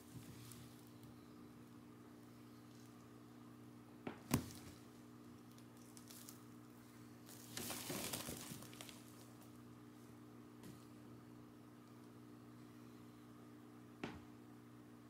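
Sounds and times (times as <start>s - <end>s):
crinkly rustling of a rush mat: 0.0s - 1.0s, 5.5s - 9.6s
faint steady hum: 0.0s - 15.0s.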